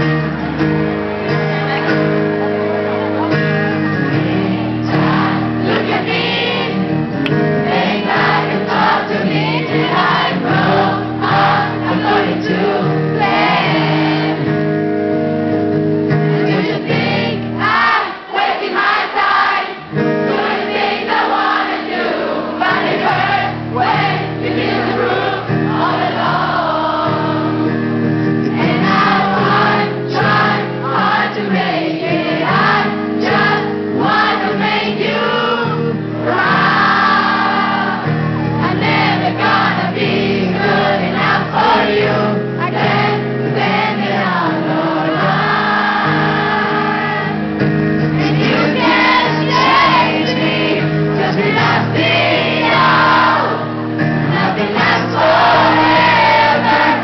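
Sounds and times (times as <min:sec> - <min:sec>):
crowd singing along: 0:00.0 - 0:57.0
pop-punk band playing live: 0:00.0 - 0:57.0
lead singer singing: 0:01.2 - 0:14.7, 0:16.2 - 0:27.8, 0:28.4 - 0:57.0.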